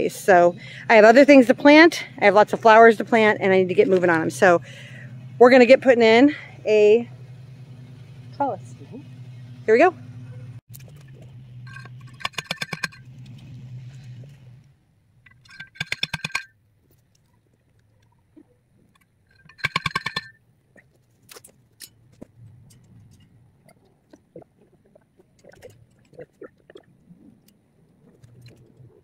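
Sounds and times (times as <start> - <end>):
post driver clanging on steel: 11.7 - 13.1, 15.3 - 16.5, 19.3 - 20.4.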